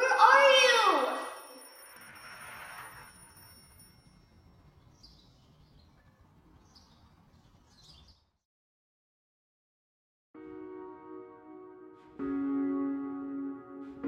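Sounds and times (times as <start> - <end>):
faint birds chirping: 4.1 - 8.4.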